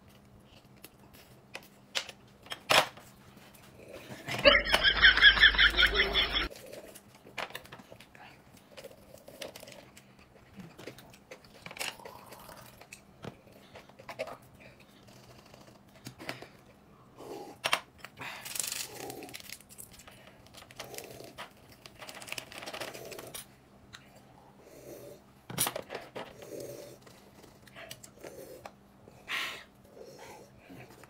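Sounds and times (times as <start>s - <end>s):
people chewing and crunching: 0.0s - 2.4s, 3.1s - 25.3s, 26.0s - 31.0s
food packaging crinkling: 18.3s - 23.5s.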